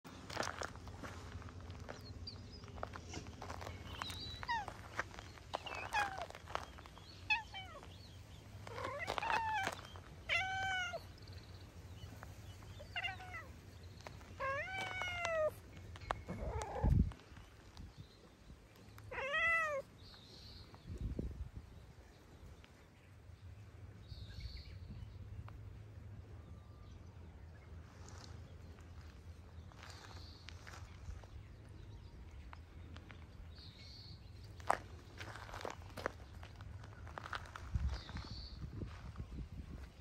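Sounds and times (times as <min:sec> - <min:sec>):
cat meowing: 0:08.7 - 0:11.1, 0:12.8 - 0:13.5, 0:19.1 - 0:19.9.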